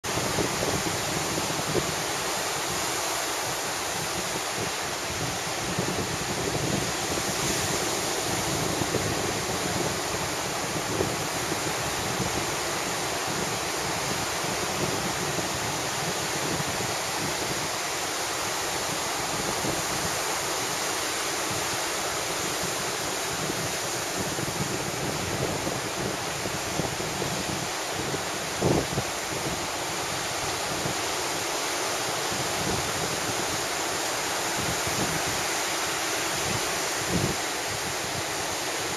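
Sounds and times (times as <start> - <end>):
small waves breaking on beach: 0.0 - 38.9
wind buffeting microphone: 3.9 - 17.7, 21.5 - 31.1, 36.3 - 38.9.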